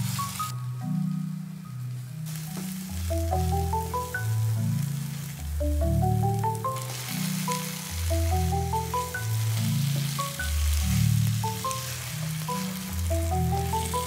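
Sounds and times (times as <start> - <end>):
background music with deep bass: 0.0 - 14.0
food sizzling: 0.0 - 14.0.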